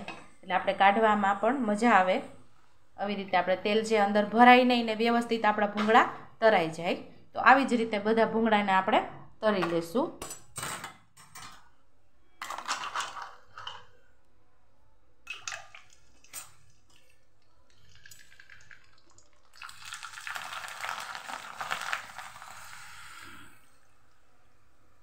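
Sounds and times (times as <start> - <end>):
food sizzling in hot oil: 19.6 - 23.6.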